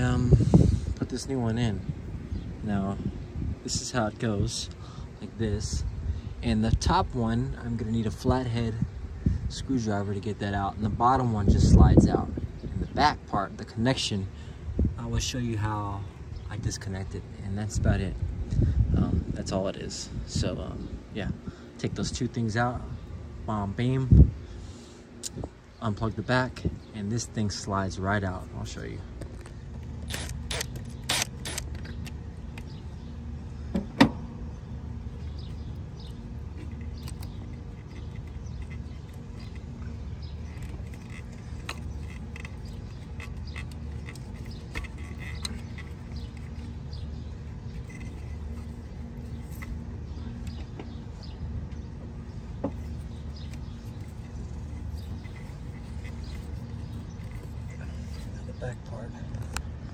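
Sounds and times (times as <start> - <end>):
wind rumble on microphone: 0.0 - 13.9, 14.6 - 24.5, 25.3 - 27.0.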